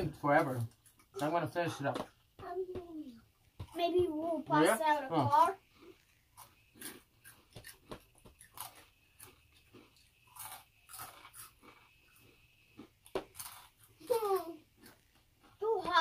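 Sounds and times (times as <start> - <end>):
people crunching chips: 5.6 - 15.6.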